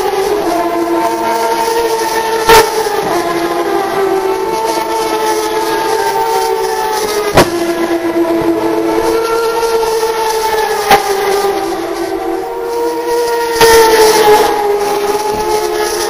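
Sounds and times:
race car engines high revs: 0.0s - 16.0s
sharp bangs: 6.4s - 10.0s.

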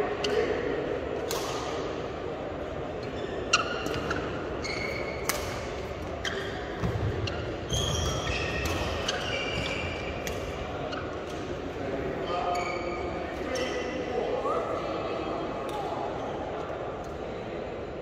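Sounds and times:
racket hitting shuttlecock: 1.2s - 1.9s, 5.0s - 7.4s, 8.0s - 10.6s
shoes squeaking on court: 3.0s - 11.4s, 12.4s - 13.9s.

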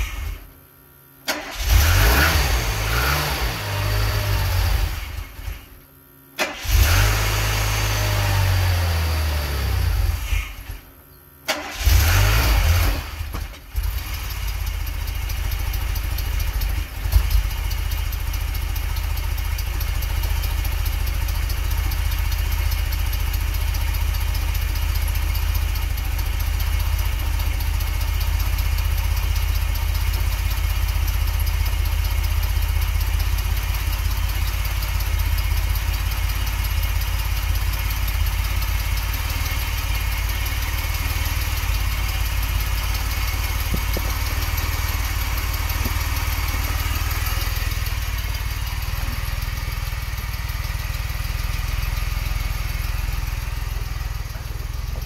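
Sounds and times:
car engine idling: 13.0s - 55.0s.

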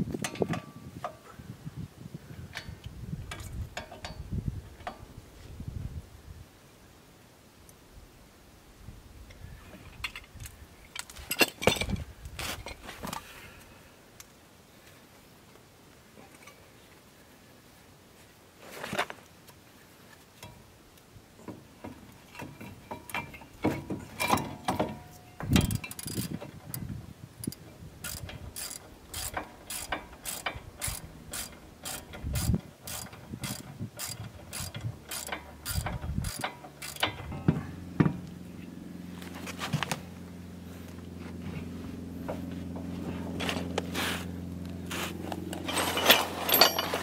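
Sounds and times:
low steady hum: 19.6s - 47.0s
socket ratchet clicking: 27.4s - 37.1s
metal tool clanks: 45.5s - 47.0s.

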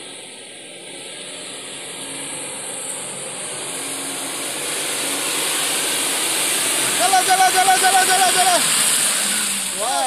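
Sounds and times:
car engine driving through mud: 2.0s - 10.0s.

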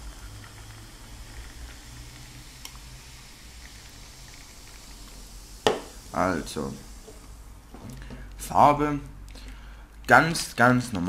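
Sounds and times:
drink pouring into a glass: 0.0s - 6.2s
foam fizzing: 0.0s - 7.7s.

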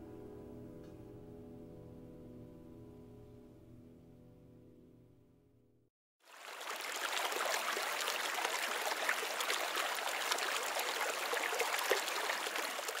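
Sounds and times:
waterfall rushing and splashing: 6.3s - 13.0s.

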